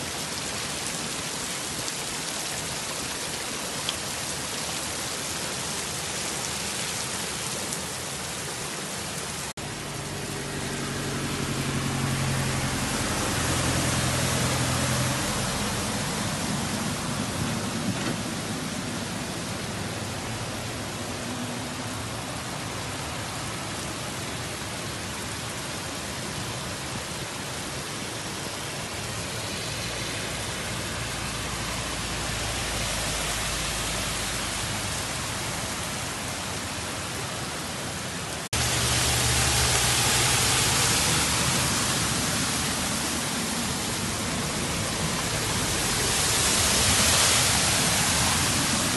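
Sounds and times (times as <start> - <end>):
heavy rain falling: 0.0 - 48.9
vehicle engine hum: 9.6 - 23.2, 38.4 - 48.9.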